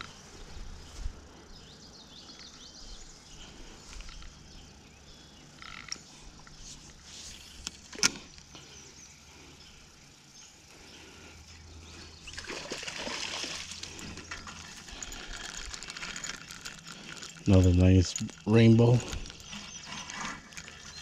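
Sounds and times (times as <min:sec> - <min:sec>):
water splashing and sloshing: 0:12.2 - 0:17.5
fish thrashing at water surface: 0:12.3 - 0:17.5.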